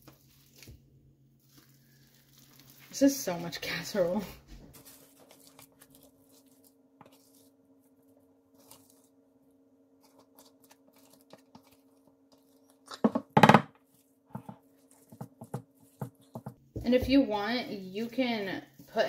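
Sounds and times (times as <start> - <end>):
spatula scraping mixture: 1.4 - 9.3, 9.9 - 13.1, 13.8 - 17.2.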